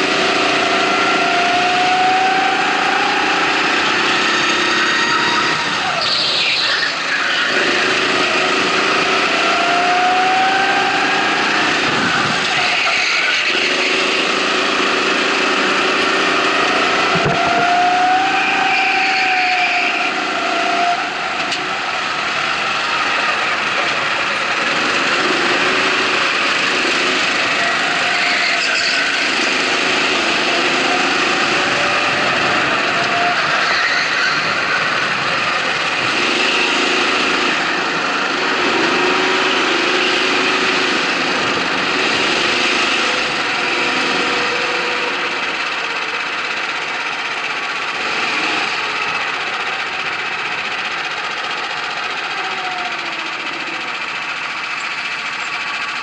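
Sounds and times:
go-kart engine revving: 0.0 - 56.0
wind noise: 11.8 - 12.6.

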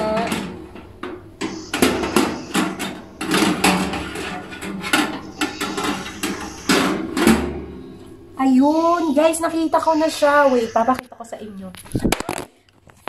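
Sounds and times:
metal racks clanking in oven: 0.0 - 10.1.

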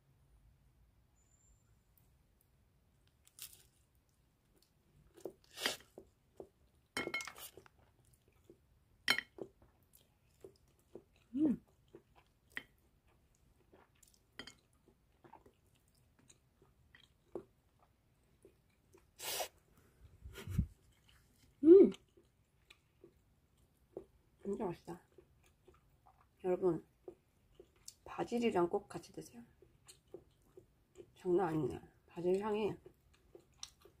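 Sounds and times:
crunchy chewing: 3.0 - 19.6, 25.0 - 26.4, 27.0 - 28.1, 32.8 - 34.0.

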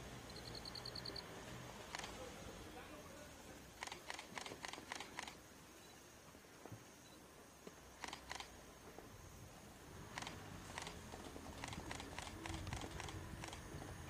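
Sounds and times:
camera shutter clicks: 1.9 - 2.2, 3.8 - 5.4, 8.0 - 8.5, 10.1 - 11.0, 11.6 - 13.7.

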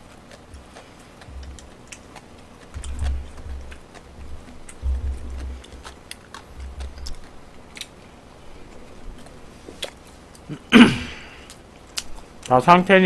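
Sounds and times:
person chewing: 0.0 - 12.6
low thuds: 2.8 - 5.8.

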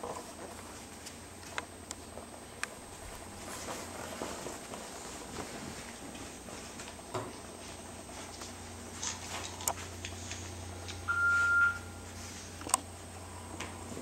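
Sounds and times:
electronic beep: 11.1 - 12.0.

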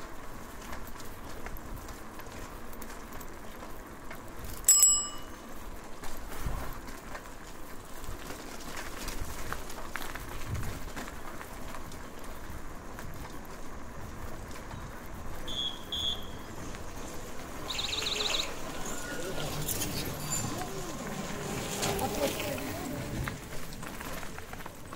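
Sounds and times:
steady background noise: 0.0 - 24.9
bicycle bell ding: 4.7 - 5.4.

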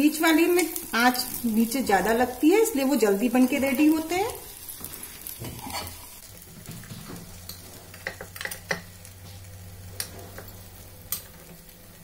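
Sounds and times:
oil sizzling: 0.0 - 12.0
metal spoon scraping a pan: 5.2 - 6.2.

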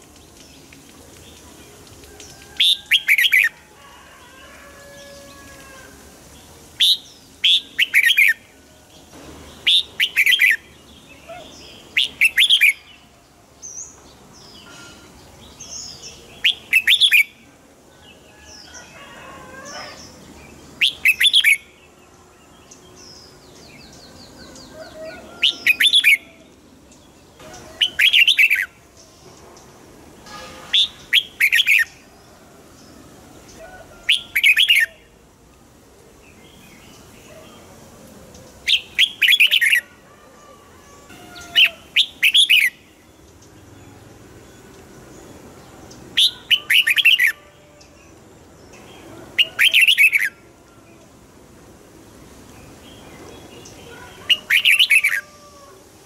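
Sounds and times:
bird singing loud phrases: 2.6 - 3.5, 6.7 - 8.4, 9.5 - 13.1, 15.5 - 17.4, 19.6 - 29.1, 30.7 - 32.1, 33.5 - 35.1, 38.4 - 39.9, 41.1 - 44.6, 45.9 - 50.4, 52.6 - 55.8.

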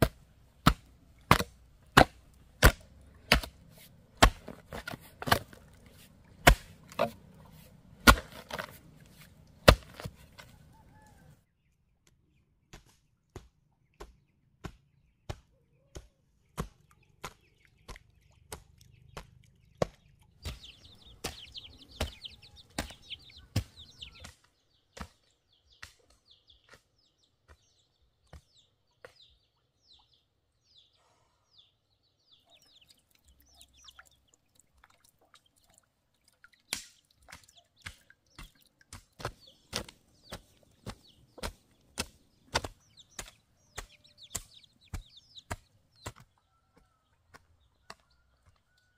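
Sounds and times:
chopping strikes: 0.0 - 3.6, 4.2 - 5.6, 6.4 - 7.2, 8.0 - 8.8, 9.6 - 10.2, 19.8 - 24.4, 36.7 - 46.2
high chirping birds: 1.9 - 48.9.

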